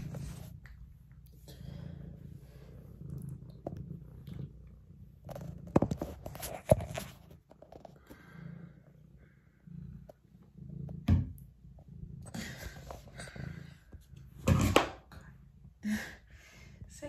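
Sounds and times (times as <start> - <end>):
cat purring: 0.0 - 17.0
rustling: 5.2 - 8.3.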